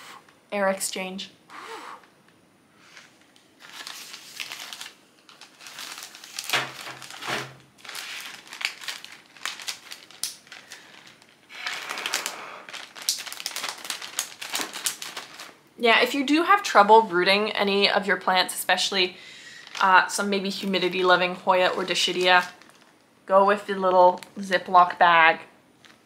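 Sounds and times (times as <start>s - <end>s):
breath blown into bag: 1.5s - 2.1s
plastic bag crinkling: 2.8s - 15.9s, 19.4s - 23.0s, 23.8s - 24.9s, 25.8s - 26.0s.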